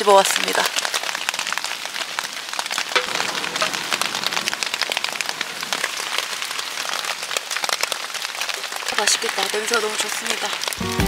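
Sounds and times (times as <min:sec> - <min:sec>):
steady rain pattering: 0:00.0 - 0:11.0.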